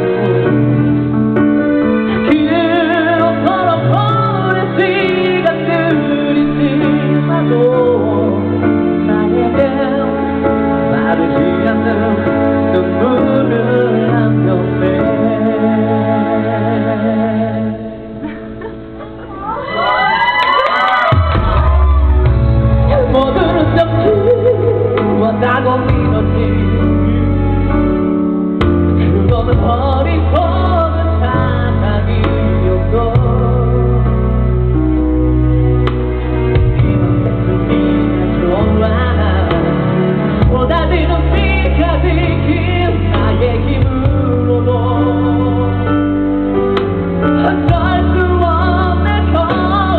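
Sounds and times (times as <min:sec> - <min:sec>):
live band playing slow song: 0:00.0 - 0:49.9
person singing through pa: 0:02.1 - 0:18.1, 0:21.1 - 0:27.4, 0:28.7 - 0:34.6, 0:38.2 - 0:49.9
band playing held chords: 0:18.7 - 0:29.9.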